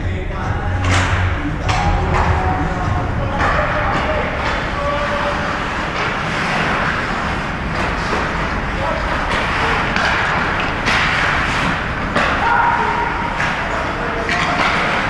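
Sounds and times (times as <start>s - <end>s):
crowd voices: 0.0s - 15.0s
steady noisy rush: 0.0s - 15.0s
hockey stick and puck knocks: 9.3s - 12.5s, 14.3s - 15.0s.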